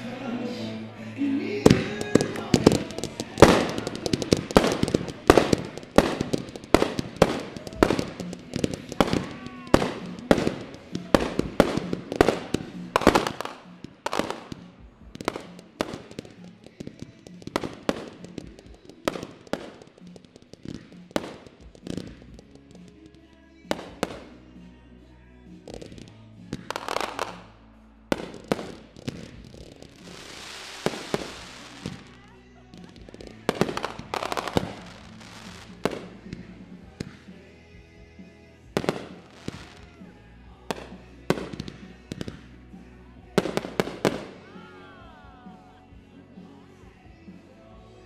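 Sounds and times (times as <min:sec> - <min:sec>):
firework bangs: 0:01.6 - 0:24.7, 0:25.5 - 0:44.7.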